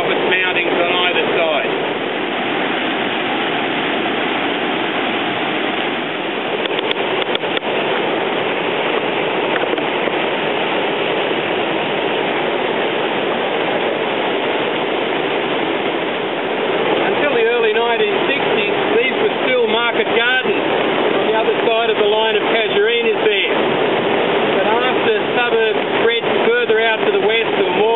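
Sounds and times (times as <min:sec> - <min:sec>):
floodwater rushing in a creek: 0:00.0 - 0:27.9
heavy rain falling: 0:00.0 - 0:27.9
sharp clicks: 0:06.6 - 0:07.6.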